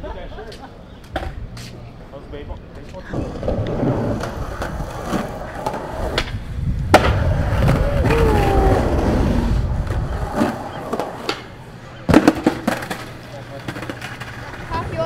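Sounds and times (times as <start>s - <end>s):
skateboard wheels rolling on concrete: 0.4s - 15.0s
skateboard sharp clack: 3.4s - 7.8s, 9.9s - 11.5s, 12.1s - 14.8s.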